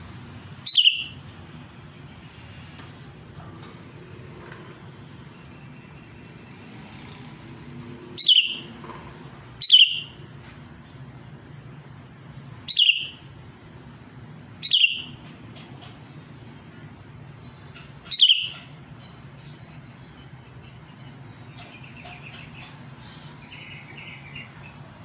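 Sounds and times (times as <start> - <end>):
bird calling: 0.6 - 1.2, 8.2 - 8.7, 9.6 - 10.2, 12.7 - 13.2, 14.6 - 15.2, 17.7 - 18.7.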